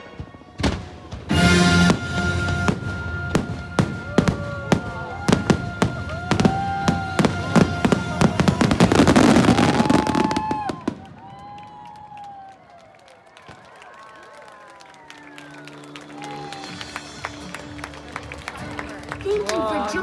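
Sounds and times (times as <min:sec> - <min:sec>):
music playing: 0:00.0 - 0:09.5, 0:15.0 - 0:20.0
fireworks bursting: 0:00.1 - 0:11.8
fireworks crackling: 0:00.1 - 0:12.5.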